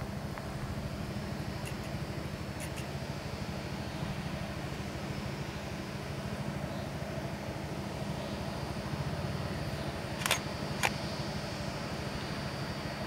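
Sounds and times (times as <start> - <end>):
faint hum: 0.0 - 13.0
low outdoor rumble: 0.0 - 13.0
sharp clicks: 10.2 - 11.0.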